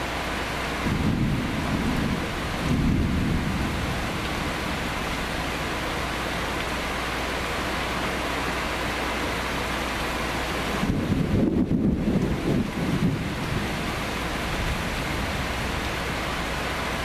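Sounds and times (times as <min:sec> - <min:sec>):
heavy rain: 0:00.0 - 0:17.0
thunder rumbling: 0:00.7 - 0:07.1, 0:10.7 - 0:17.0.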